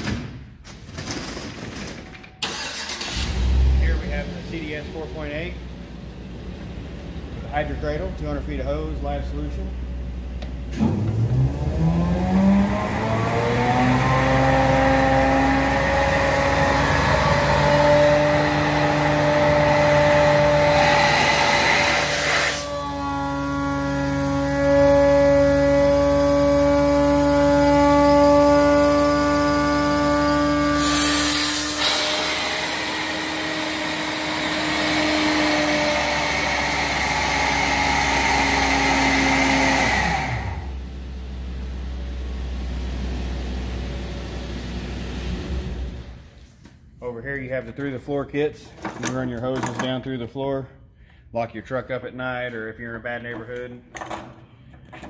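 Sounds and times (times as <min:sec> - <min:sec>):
vacuum blower whine: 0:10.8 - 0:40.8.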